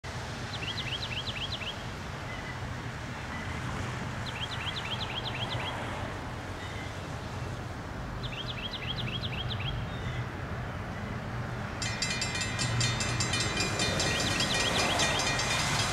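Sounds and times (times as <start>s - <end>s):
songbird singing: 0.5s - 2.6s, 4.2s - 5.8s, 8.2s - 10.3s, 11.9s - 15.8s.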